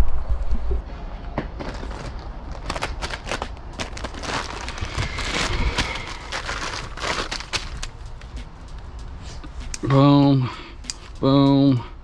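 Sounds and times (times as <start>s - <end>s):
person rustling and handling things: 0.0s - 10.0s
plastic bag crinkling: 1.6s - 7.9s.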